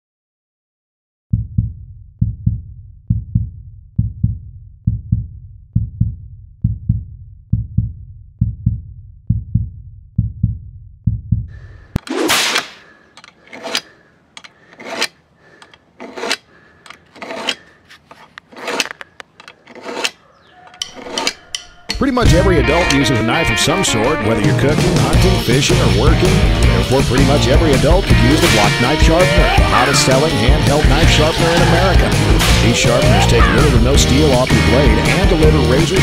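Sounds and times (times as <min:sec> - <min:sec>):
bass-heavy music beat: 0:01.4 - 0:11.5, 0:22.2 - 0:36.0
blade rasping through sharpener: 0:13.3 - 0:22.0.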